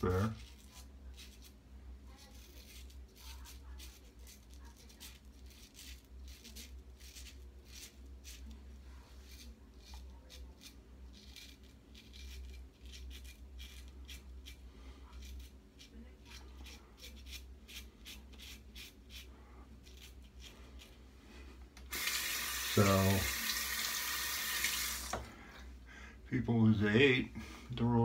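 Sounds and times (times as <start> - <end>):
razor scraping stubble: 0.0 - 21.0
steady low hum: 25.2 - 28.0.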